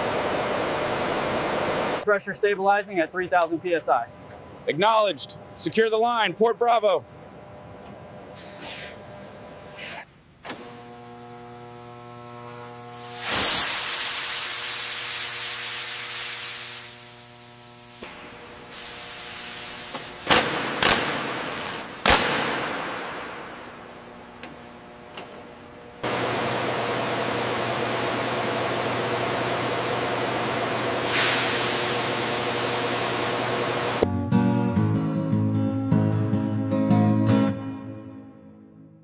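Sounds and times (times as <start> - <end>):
droning hum: 0.0 - 8.4, 10.6 - 13.2
steady hiss: 12.8 - 23.9.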